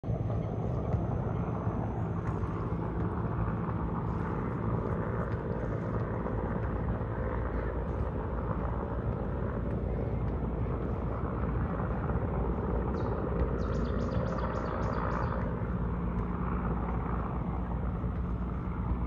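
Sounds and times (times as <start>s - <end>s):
helicopter rotor and engine drone: 0.0s - 19.0s.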